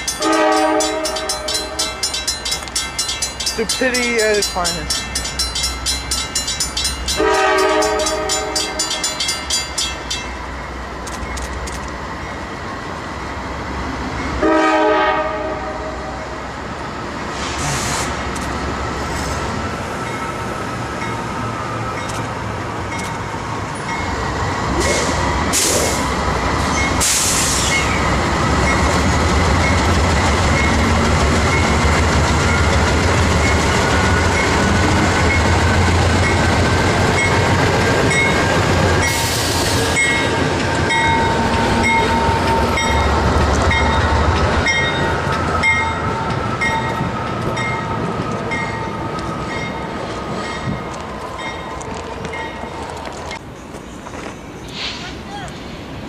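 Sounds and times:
crossing warning bell ringing: 0:00.0 - 0:12.5, 0:20.0 - 0:24.3, 0:27.7 - 0:53.5.

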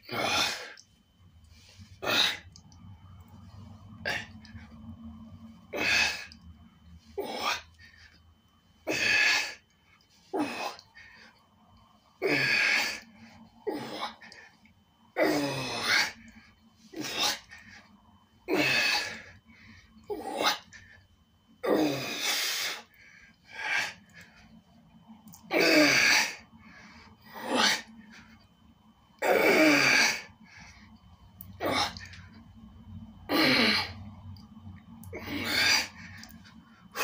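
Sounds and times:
man breathing forcefully: 0:05.6 - 0:06.4, 0:18.5 - 0:21.0, 0:21.8 - 0:24.5.

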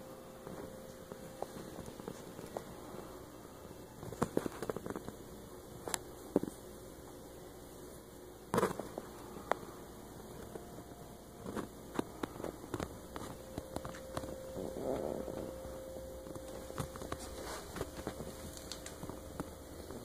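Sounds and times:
air handler hum: 0:00.0 - 0:20.0
thin steady tone: 0:09.0 - 0:20.0.

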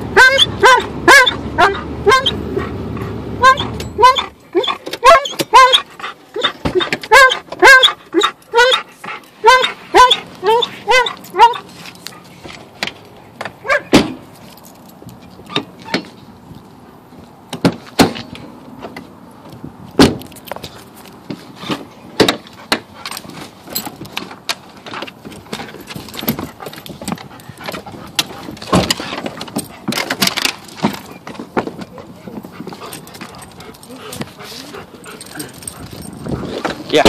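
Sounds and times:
metal jingling: 0:25.1 - 0:31.3, 0:31.9 - 0:37.0.

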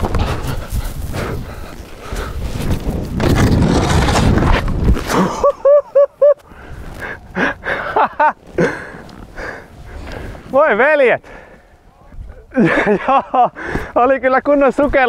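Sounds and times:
man huffing and breathing hard: 0:00.0 - 0:02.6, 0:06.4 - 0:10.4, 0:11.2 - 0:11.8, 0:12.4 - 0:14.0
skis sliding over snow: 0:00.2 - 0:05.4.

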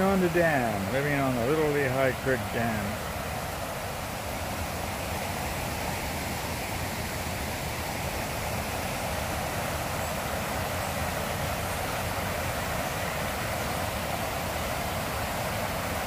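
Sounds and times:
water rushing over a dam: 0:00.0 - 0:16.0.

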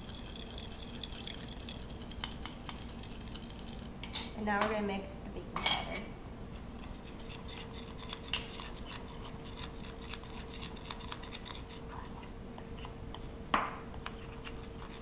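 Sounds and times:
spoon stirring and scraping paste: 0:00.0 - 0:03.9, 0:06.5 - 0:15.0
spoon clinking on glass: 0:00.0 - 0:04.3.

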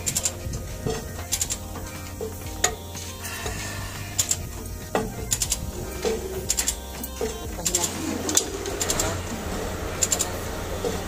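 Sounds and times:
steady low hum: 0:00.0 - 0:11.0
ratchet wrench clicking: 0:05.0 - 0:09.4, 0:10.0 - 0:11.0.

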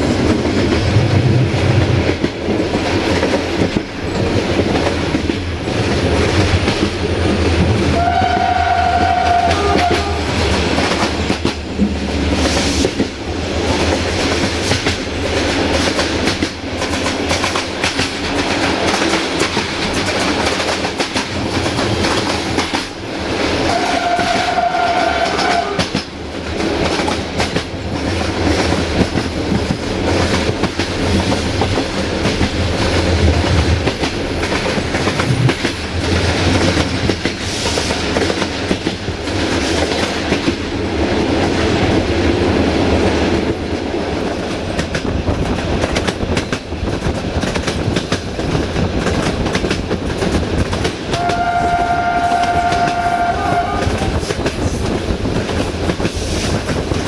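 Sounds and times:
train horn: 0:07.8 - 0:10.4, 0:23.6 - 0:25.9, 0:51.1 - 0:54.2
rail-joint clicks: 0:07.8 - 0:23.0.

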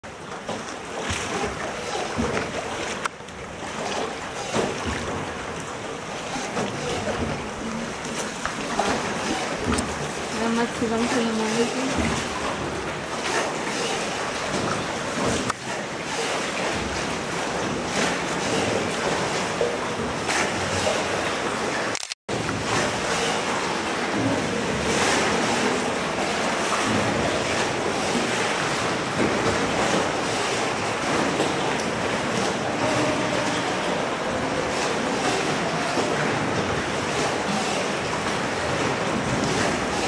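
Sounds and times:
water splashing around boat: 0:00.0 - 0:40.0
sharp click: 0:21.9 - 0:22.2.

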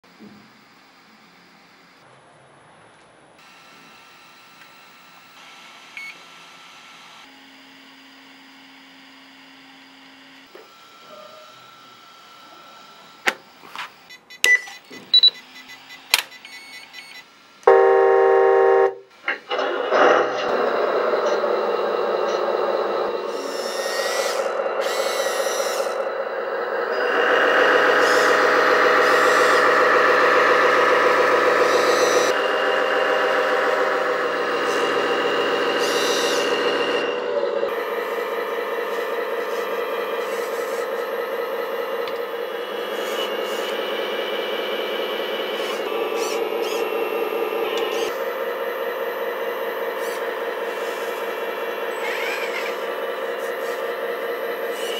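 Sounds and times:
simulated diesel engine running: 0:15.2 - 0:54.9
loud horn-like tone: 0:17.7 - 0:19.1.

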